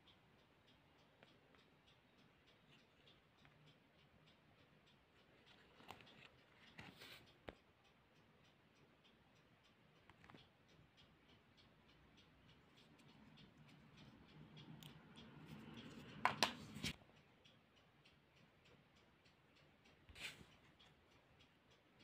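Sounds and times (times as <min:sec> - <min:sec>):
fast even ticking: 0:00.0 - 0:16.3.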